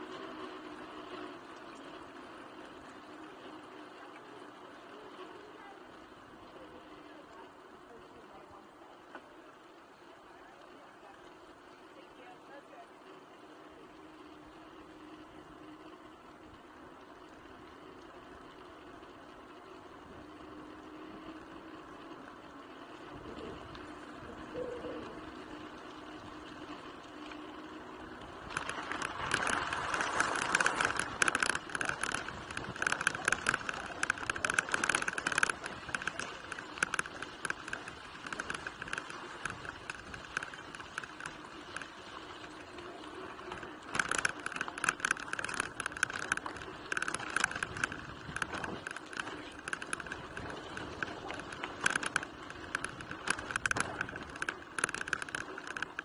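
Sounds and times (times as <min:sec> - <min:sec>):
bike rattling over bumps: 0:00.0 - 0:09.4, 0:13.4 - 0:56.0
tyres crunching on gravel: 0:28.4 - 0:41.6.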